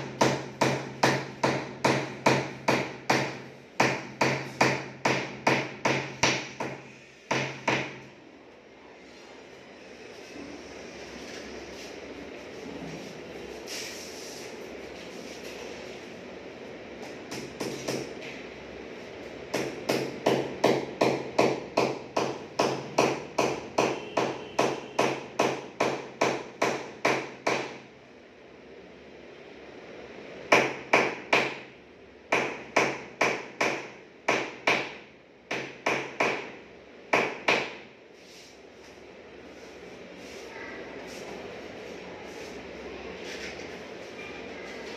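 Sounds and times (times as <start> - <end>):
hammer blows ringing: 19.6 - 27.7.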